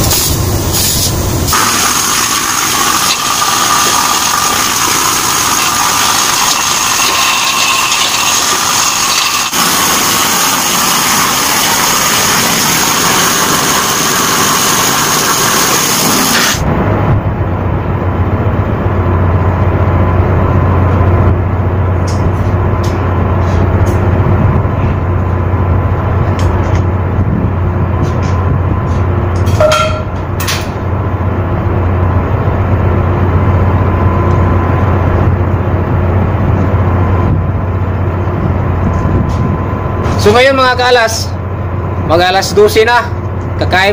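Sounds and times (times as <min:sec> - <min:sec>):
steady low hum: 0:00.0 - 0:01.6, 0:09.4 - 0:43.9
wind rumble on microphone: 0:16.6 - 0:40.5.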